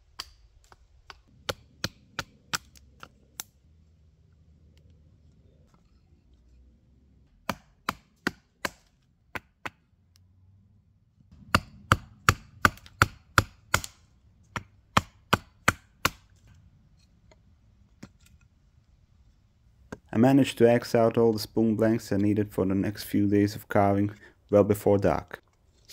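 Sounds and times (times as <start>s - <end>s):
axe chopping wood: 0.1s - 3.5s, 7.4s - 9.8s, 11.4s - 16.4s.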